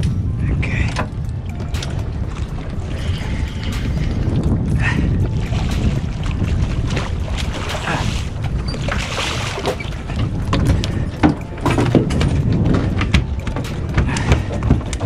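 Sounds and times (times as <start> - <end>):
water around boat: 0.0 - 15.0
wind: 0.0 - 15.0
knocks on boat: 8.9 - 15.0.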